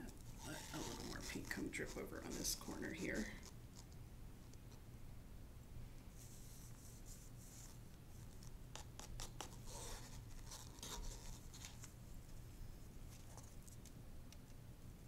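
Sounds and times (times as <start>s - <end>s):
small clicks and scrapes: 0.0s - 4.8s, 6.2s - 12.0s, 13.1s - 14.6s
soft rustle of handling: 0.0s - 4.8s, 6.0s - 8.6s, 9.4s - 14.6s.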